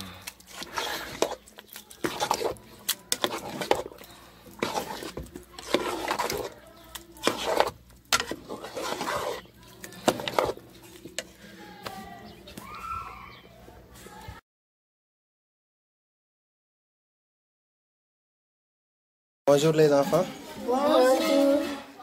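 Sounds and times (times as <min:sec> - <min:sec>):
metal ladle scraping cooking pot: 0:00.0 - 0:11.6.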